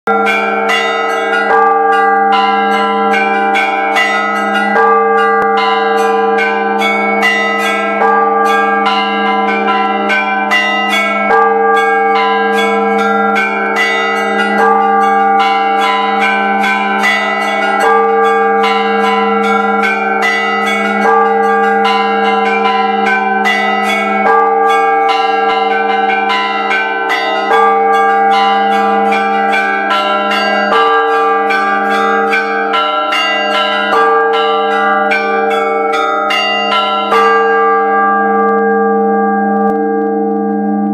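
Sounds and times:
church bells ringing: 0.1 - 40.9.

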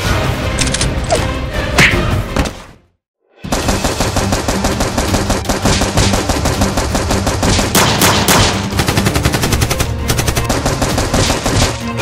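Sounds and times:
rapid automatic gunfire: 3.5 - 11.9.

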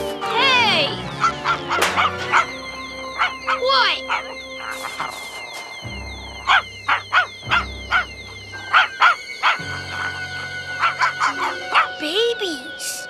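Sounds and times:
orchestral underscore: 0.0 - 13.0
cartoon dog barking: 10.9 - 12.0.

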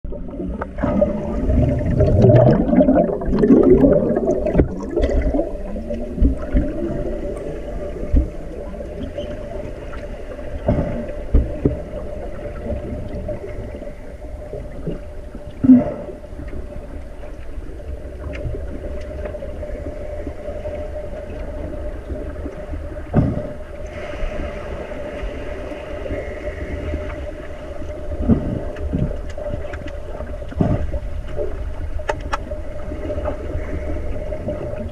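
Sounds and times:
steady underwater hum: 0.0 - 34.9
underwater bubbles gurgling: 0.0 - 34.9
underwater knocks and thumps: 0.1 - 7.3, 7.9 - 9.6, 10.5 - 12.0, 21.3 - 23.8, 28.2 - 32.5.

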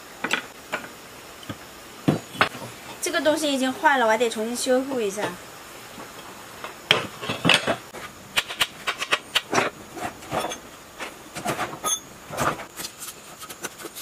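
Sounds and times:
metallic clanks and scrapes: 8.4 - 13.0.

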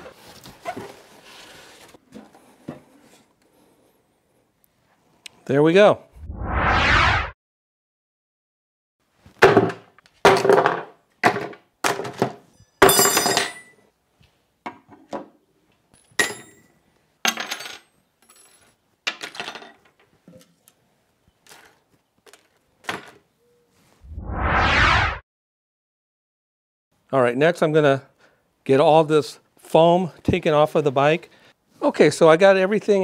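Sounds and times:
whoosh: 6.2 - 7.4, 24.0 - 25.2.

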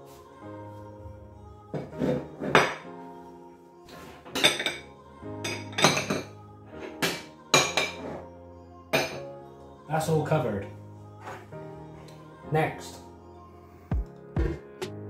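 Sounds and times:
ceramic plates and bowls clinking: 1.8 - 2.8, 4.3 - 8.2.

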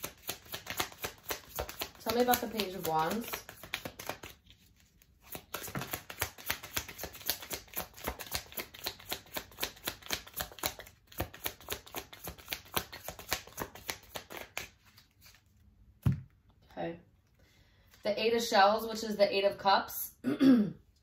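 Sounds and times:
cards being shuffled by hand: 0.0 - 16.2.

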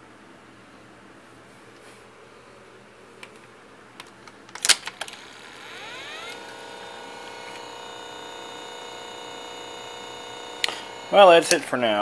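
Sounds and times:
motor whine spinning up: 5.0 - 12.0.

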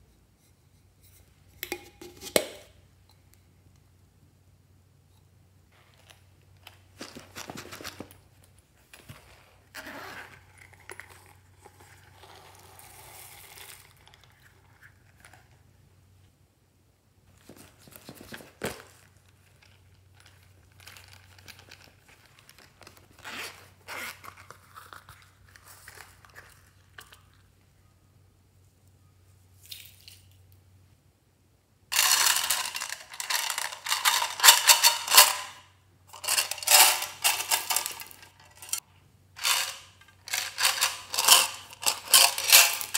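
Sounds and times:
rustling and crinkling of pouches: 6.7 - 14.0, 17.3 - 27.0, 31.9 - 35.5, 36.1 - 38.8, 39.4 - 42.9.

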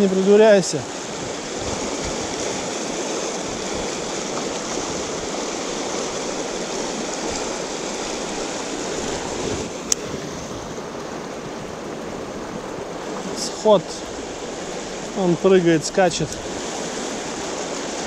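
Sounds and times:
river rushing over rocks: 0.0 - 18.0.

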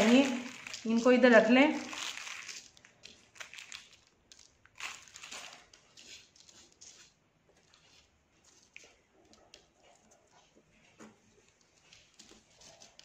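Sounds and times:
plastic bag crinkling: 0.0 - 6.8
foil stars rustling: 0.0 - 6.9.

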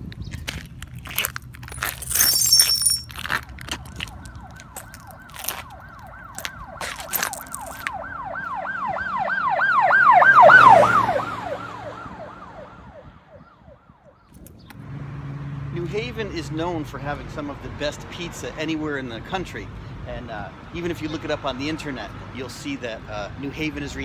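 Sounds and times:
emergency vehicle siren yelping: 3.9 - 14.3.

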